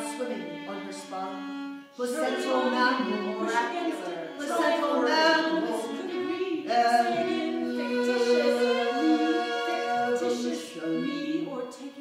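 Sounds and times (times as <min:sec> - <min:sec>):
wordless choral singing: 0:02.0 - 0:11.4.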